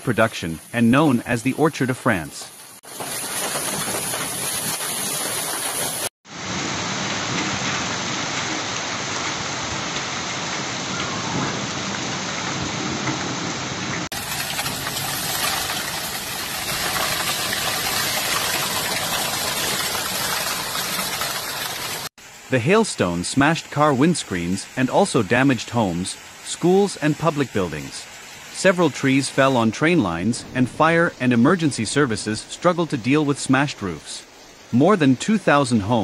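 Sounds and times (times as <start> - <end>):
heavy rain and hail: 1.1 - 22.5.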